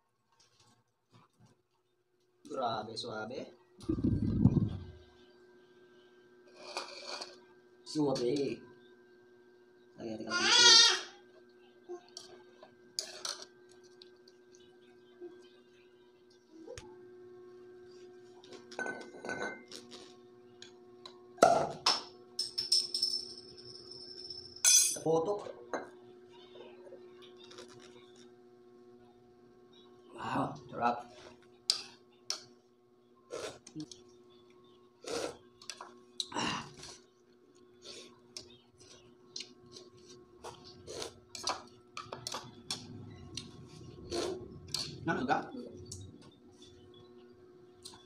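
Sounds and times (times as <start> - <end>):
faint steady hum: 0.0 - 48.0
glass bottle clinking on tile floor: 21.8 - 25.1.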